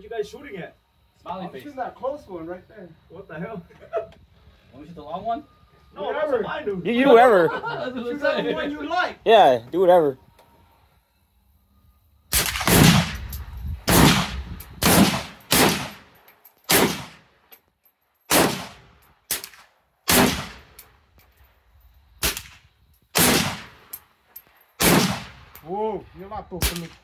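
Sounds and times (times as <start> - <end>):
rifle shots with ringing echo: 12.3 - 17.3, 18.3 - 20.8, 22.2 - 24.0, 24.8 - 25.6, 26.6 - 27.0.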